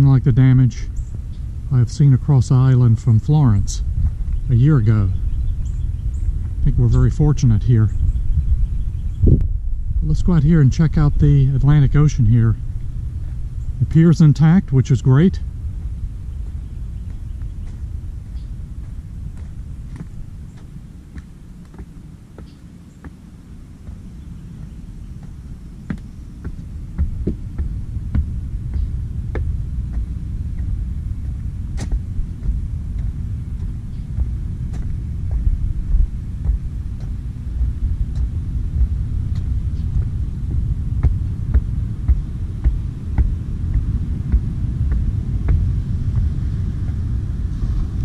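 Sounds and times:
wind buffeting microphone: 0.0s - 48.0s
footsteps on wooden steps: 3.9s - 4.5s, 15.8s - 47.8s.

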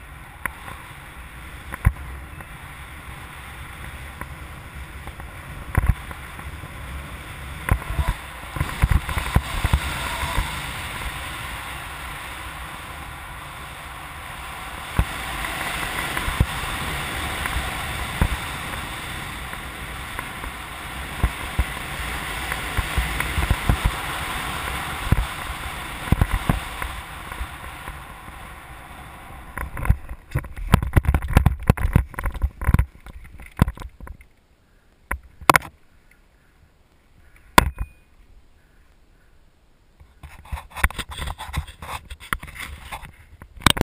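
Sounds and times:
wind rushing over microphone: 0.0s - 34.2s
gusty buffeting thumps: 1.5s - 34.2s.

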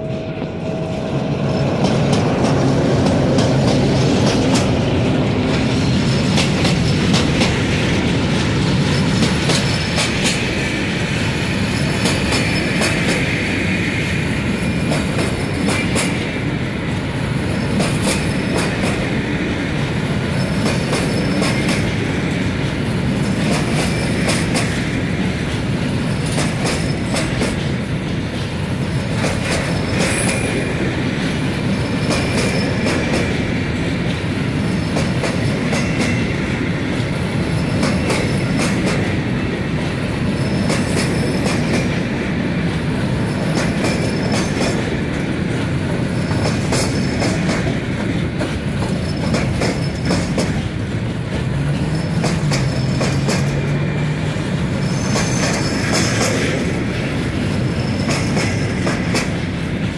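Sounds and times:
locomotive rumble: 0.0s - 13.6s, 14.4s - 59.9s
wagons rolling on rails: 0.8s - 13.2s, 17.0s - 59.9s
clicking over rail joints: 26.2s - 27.7s, 43.4s - 59.9s
wheel squeal: 54.8s - 56.2s.

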